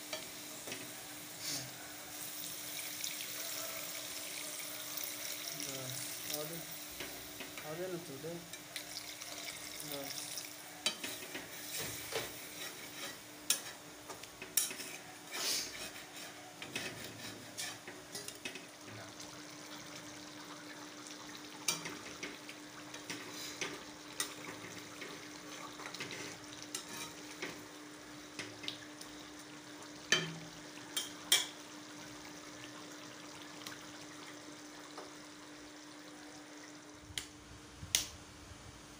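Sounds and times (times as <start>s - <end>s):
simmering liquid hiss: 0.0s - 38.9s
metal spatula scraping pan: 12.4s - 13.8s, 14.6s - 17.9s, 26.0s - 27.2s.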